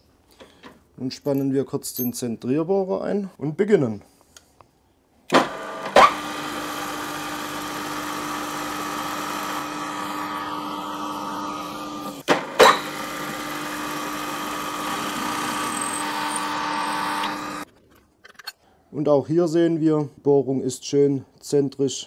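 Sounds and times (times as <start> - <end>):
drill press motor humming: 5.3 - 17.7.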